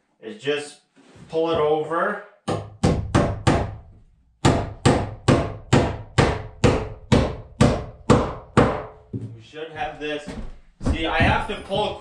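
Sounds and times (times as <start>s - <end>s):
hammer driving nails into wood: 2.5s - 3.8s, 4.4s - 9.0s.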